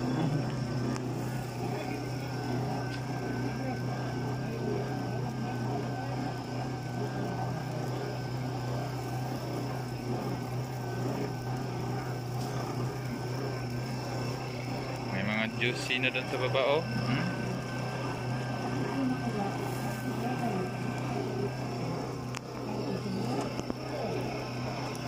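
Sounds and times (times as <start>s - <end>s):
faint wavering whine: 0.0s - 25.0s
small motor humming: 0.0s - 25.0s.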